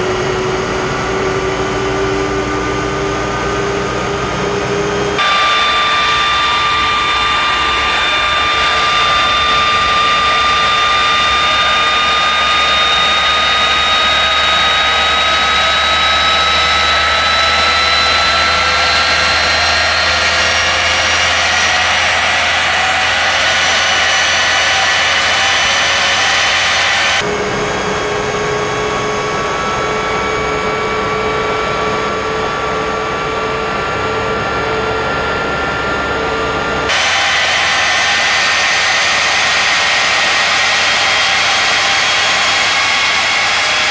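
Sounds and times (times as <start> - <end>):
jet engine turbine whine: 0.0 - 43.9.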